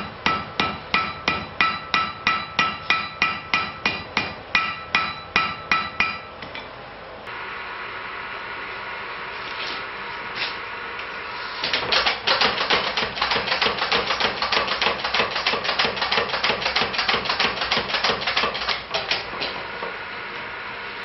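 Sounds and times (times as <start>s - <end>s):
power hammer pounding iron: 0.0s - 6.3s.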